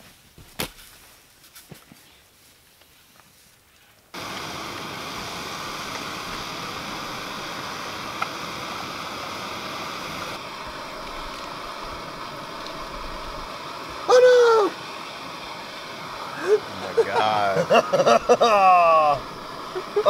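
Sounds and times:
gas stove hissing roar: 0:04.2 - 0:20.0.

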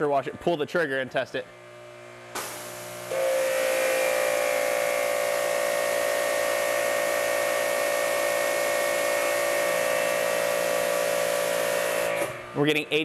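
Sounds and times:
pressure washer whining: 0:02.3 - 0:12.6.

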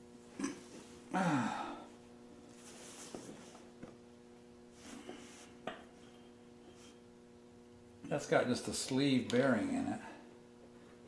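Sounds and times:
man sighing: 0:01.1 - 0:01.9.

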